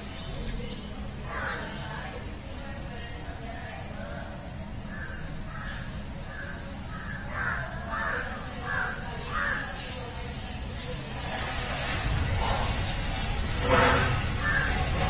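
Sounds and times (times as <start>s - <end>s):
crows cawing: 4.9s - 9.8s, 14.4s - 15.0s.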